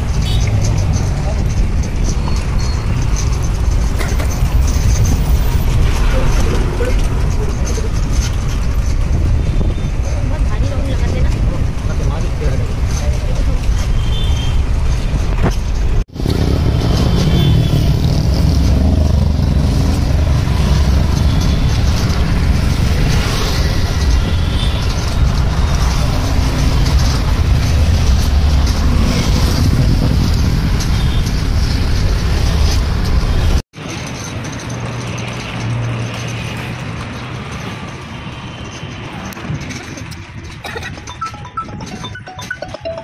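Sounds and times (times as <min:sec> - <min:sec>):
car and motorbike engines: 0:00.0 - 0:43.0.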